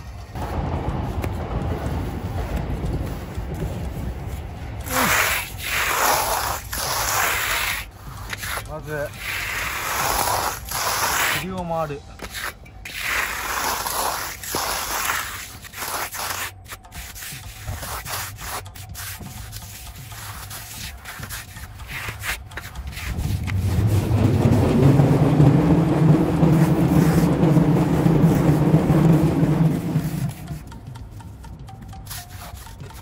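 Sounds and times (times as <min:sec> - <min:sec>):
loud low hum: 0:00.0 - 0:04.8
trowel scraping wet concrete: 0:04.8 - 0:24.0, 0:26.5 - 0:27.4, 0:32.0 - 0:33.0.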